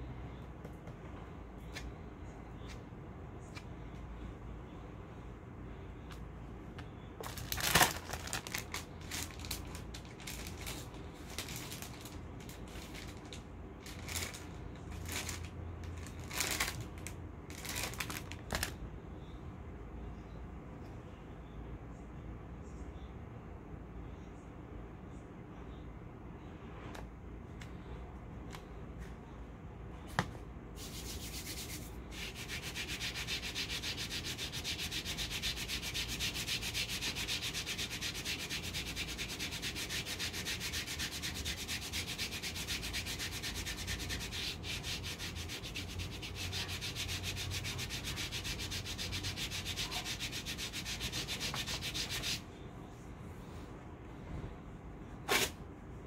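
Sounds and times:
hand rubbing wax strip: 0:30.8 - 0:52.4
wax strip ripped off: 0:55.3 - 0:55.6.

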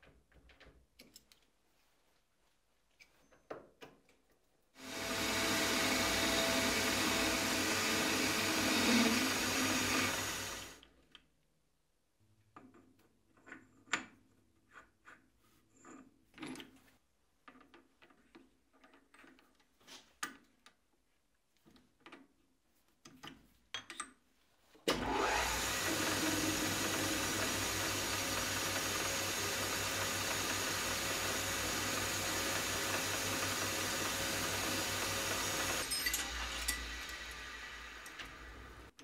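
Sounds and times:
metal lathe running: 0:04.8 - 0:10.7, 0:25.0 - 0:38.8.

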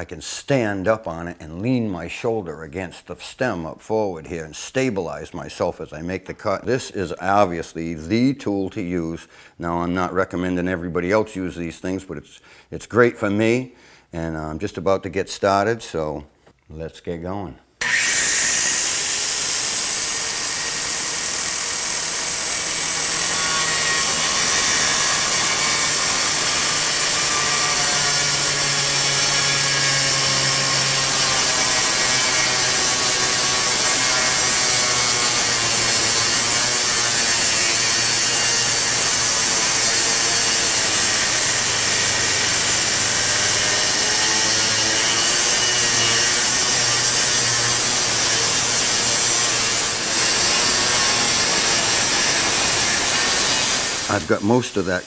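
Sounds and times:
angle grinder cutting wood: 0:17.8 - 0:55.0.

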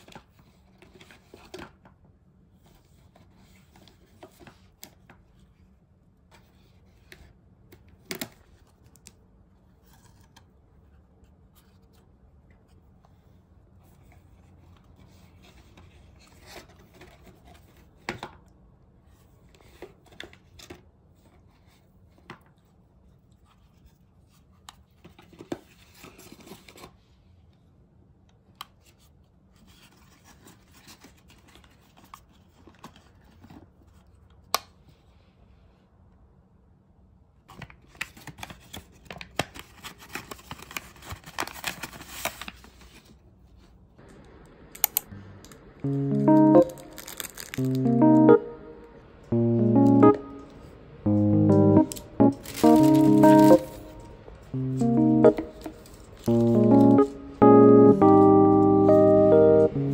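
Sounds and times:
tissue paper rustling: 0:46.6 - 0:47.8, 0:52.3 - 0:54.1.

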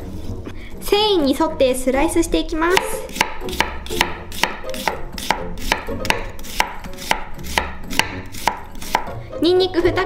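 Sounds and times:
knife chopping onion on wooden board: 0:02.7 - 0:09.2.

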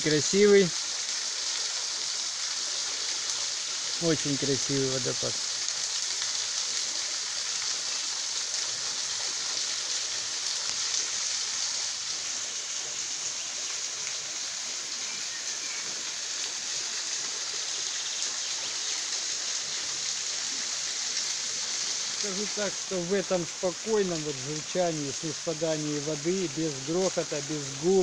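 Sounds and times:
water splashing onto rocks: 0:15.8 - 0:28.0.

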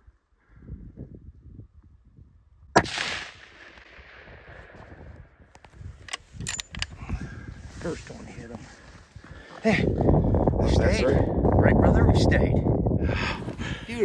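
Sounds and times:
rifle shot echoing: 0:02.8 - 0:05.0.

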